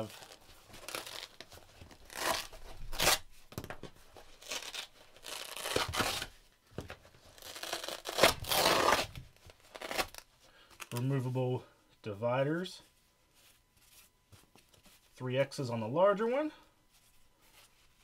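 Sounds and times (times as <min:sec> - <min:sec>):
velcro ripping apart: 0:00.0 - 0:03.3, 0:04.3 - 0:06.3, 0:07.2 - 0:11.0.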